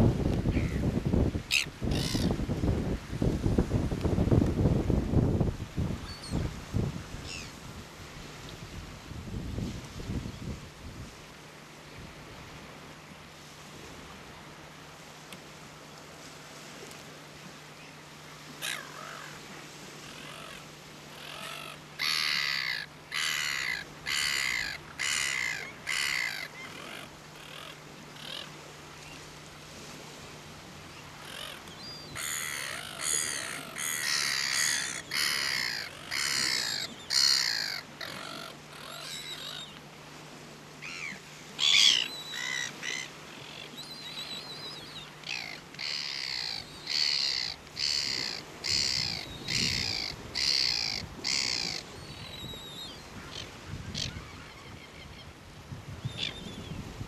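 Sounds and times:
terns rasping calls: 21.2 - 28.4, 31.2 - 39.8, 40.8 - 54.7.

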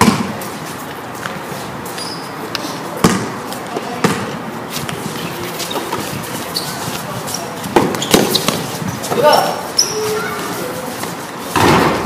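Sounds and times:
basketball bouncing on tiled court: 0.0 - 0.4, 3.0 - 5.0, 6.9 - 9.3.

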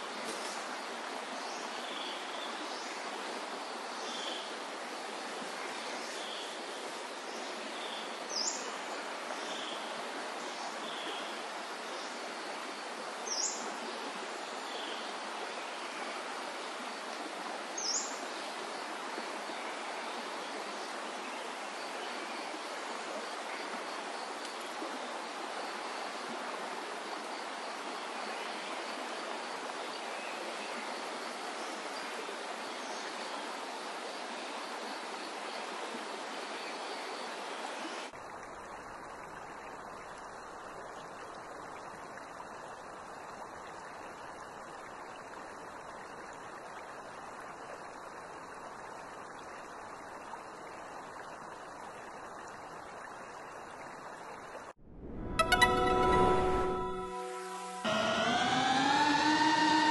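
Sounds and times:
faint high bird notes: 55.0 - 59.9.

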